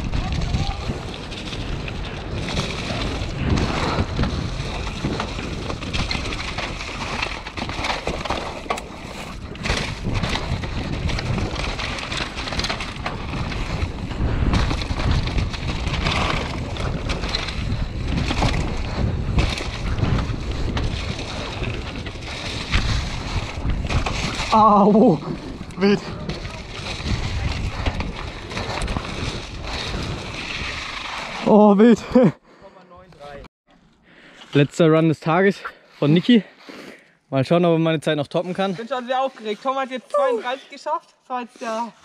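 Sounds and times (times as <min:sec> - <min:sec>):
wind rushing over microphone: 0:00.0 - 0:07.4, 0:09.3 - 0:31.4
bike knocking and rattling: 0:00.0 - 0:31.4
tyres rumbling on dirt: 0:00.0 - 0:31.7.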